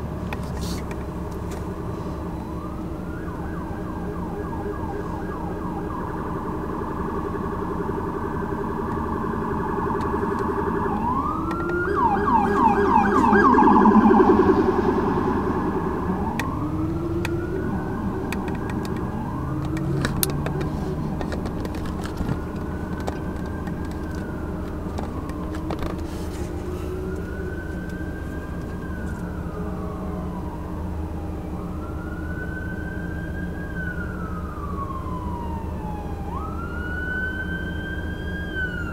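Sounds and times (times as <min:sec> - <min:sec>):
traffic rumble: 0:00.0 - 0:38.9
emergency siren: 0:01.0 - 0:38.9.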